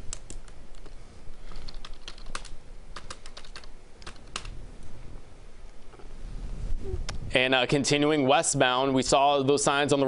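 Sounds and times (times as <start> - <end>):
keyboard typing clicks: 1.5 - 4.5.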